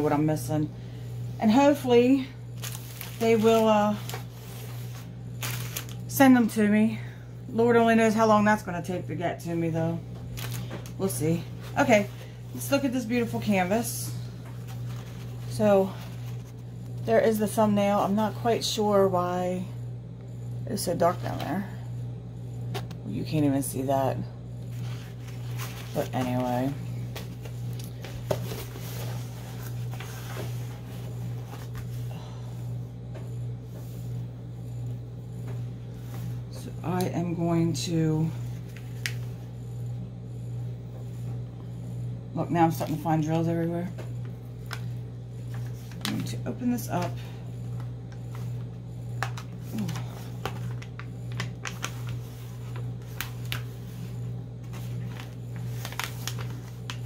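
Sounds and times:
low hum: 0.0s - 57.0s
plastic sleeve rustling on table: 2.6s - 6.0s, 24.7s - 26.5s, 49.2s - 57.0s
plastic bag crinkling: 2.6s - 6.1s, 10.3s - 11.0s, 49.2s - 54.1s, 54.7s - 57.0s.

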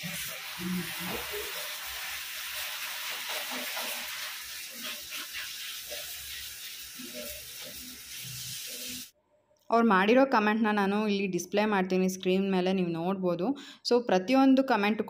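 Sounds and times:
flatbread sizzling on a hot pan: 0.0s - 9.2s.

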